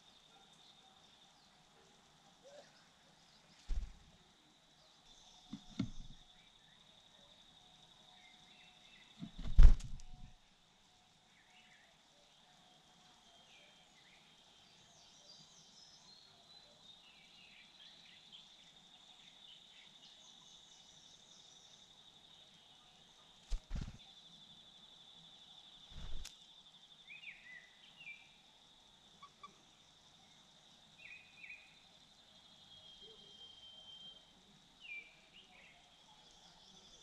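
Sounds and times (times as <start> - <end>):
sharp thumps: 5.6 - 6.2, 9.2 - 10.3
bird chirps: 29.1 - 37.0.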